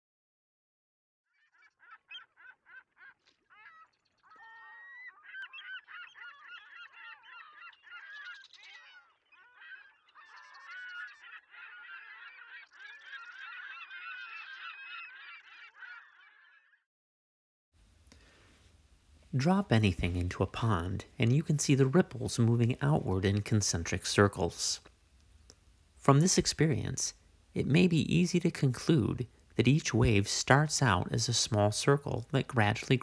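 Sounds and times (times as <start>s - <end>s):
flock of birds calling: 1.4s - 16.8s.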